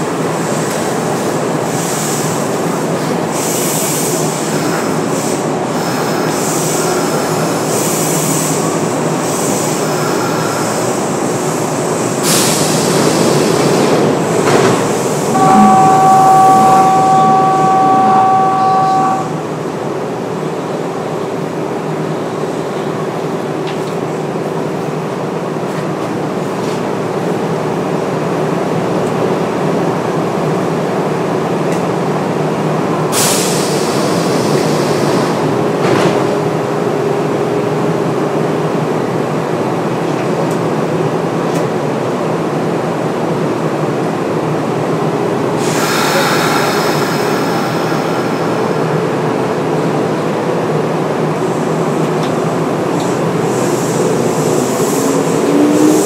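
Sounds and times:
train wheels on rails: 0.0s - 19.8s, 21.2s - 56.0s
hiss: 3.3s - 13.6s, 33.1s - 35.5s, 45.6s - 48.8s, 53.0s - 56.0s
thin high tones: 15.4s - 19.4s.

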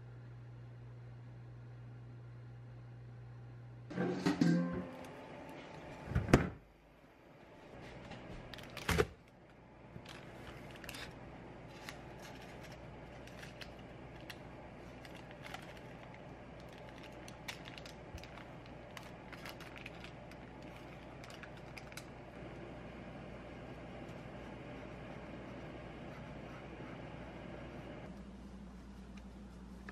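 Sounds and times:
parchment paper crinkling: 8.4s - 22.2s.

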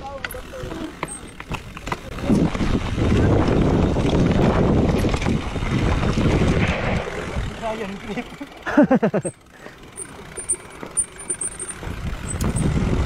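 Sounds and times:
bike tyres rumbling over dirt: 0.0s - 13.0s
wind buffeting microphone: 1.6s - 7.8s, 11.8s - 13.0s.

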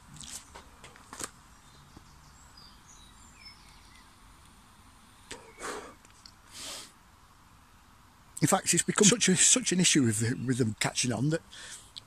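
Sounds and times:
faint bird chirps: 1.5s - 6.0s.

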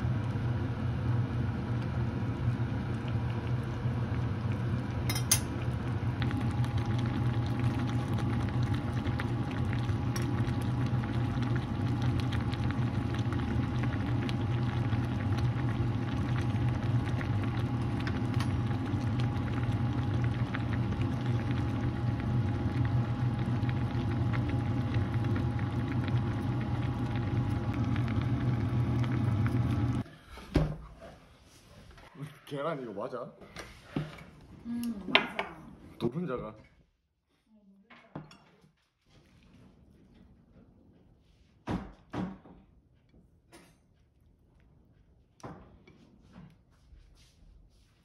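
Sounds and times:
broth boiling in a pan: 0.0s - 30.7s.

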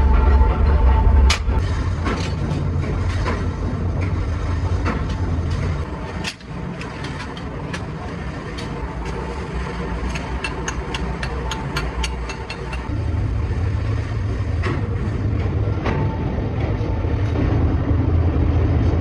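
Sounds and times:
factory machinery rumbling: 0.0s - 19.0s.

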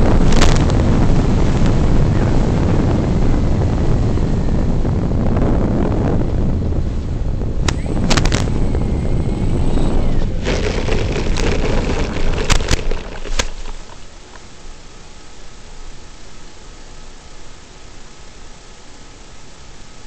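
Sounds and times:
rushing noise: 10.2s - 14.3s
sharp clicks: 10.4s - 14.4s.

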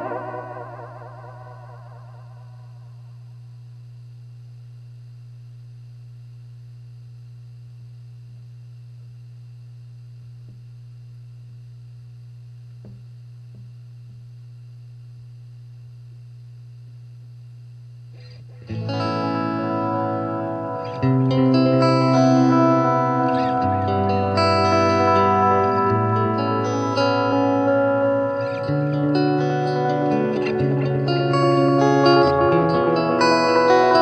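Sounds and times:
electric guitar played loudly: 0.0s - 2.6s, 18.6s - 34.0s
guitar amp hum: 0.0s - 34.0s.

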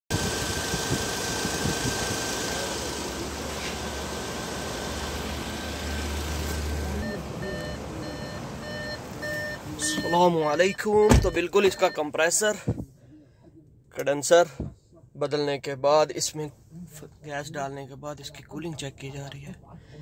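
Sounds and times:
car engine idling: 0.1s - 10.4s
car warning chime beeping: 7.0s - 12.4s.

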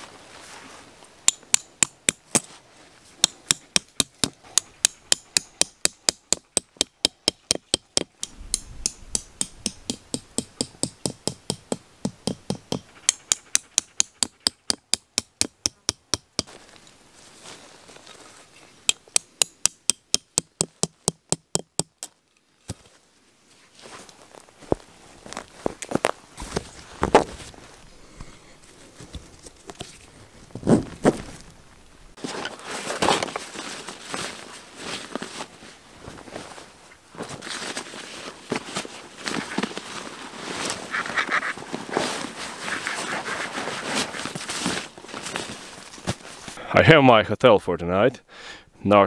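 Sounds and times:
hammering tent stakes into ground: 1.2s - 2.5s, 3.2s - 16.6s, 18.8s - 22.8s.

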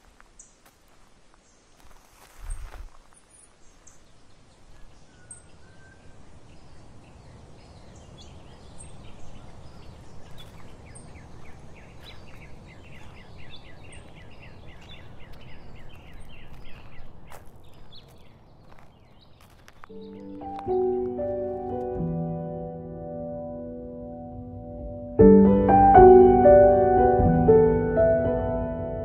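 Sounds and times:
small birds chirping: 0.0s - 21.5s.

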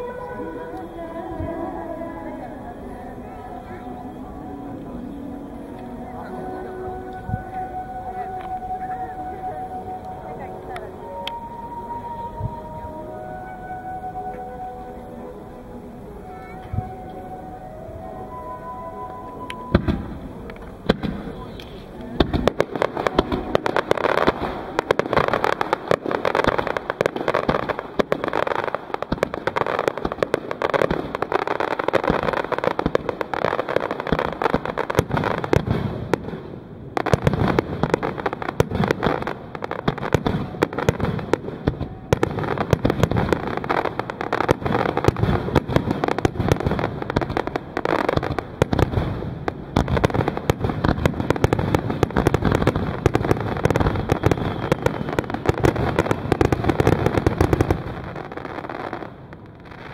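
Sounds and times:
fireworks crackling: 0.0s - 59.9s.

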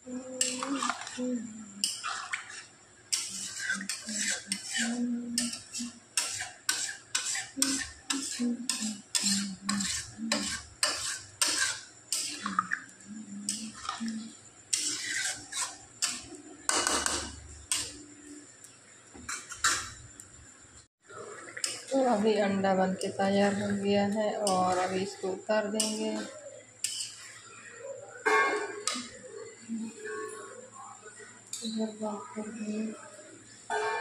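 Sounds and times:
metal spatula scraping a pan: 0.3s - 18.0s, 21.6s - 29.2s.

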